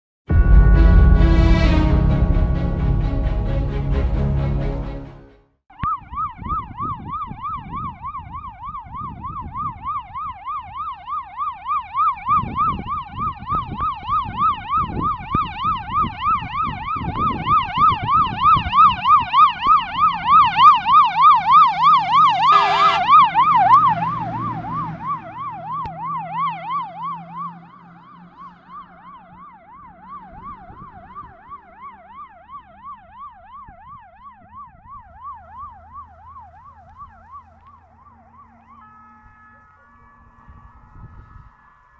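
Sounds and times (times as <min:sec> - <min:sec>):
truck engine rumble: 0:00.3 - 0:05.3, 0:18.2 - 0:32.9
air horn blast: 0:00.3 - 0:05.4, 0:22.3 - 0:23.3
fire engine siren wailing: 0:05.7 - 0:41.9.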